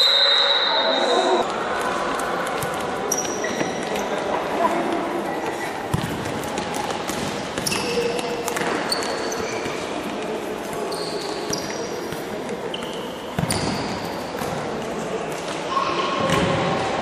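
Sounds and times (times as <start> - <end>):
sports hall din: 0.0 - 17.0
shoes squealing on court floor: 3.0 - 4.2, 7.2 - 14.3.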